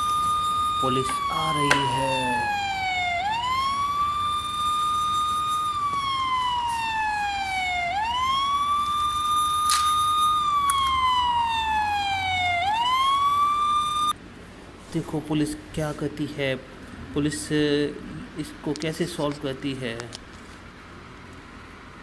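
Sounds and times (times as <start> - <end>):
electronic police siren: 0.0 - 14.2.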